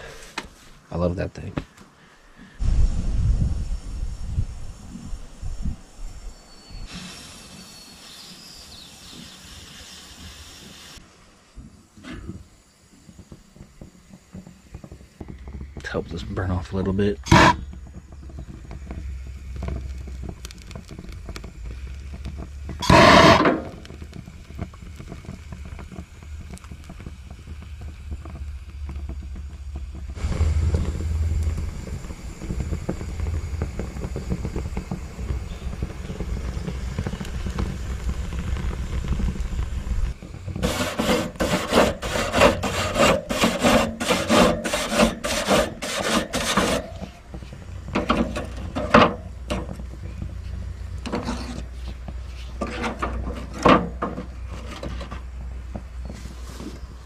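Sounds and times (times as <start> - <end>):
gas grill flame rumble: 0.0 - 57.0
wire brush scraping grill grate: 17.2 - 17.6, 22.8 - 23.8, 40.5 - 49.8, 51.0 - 55.2.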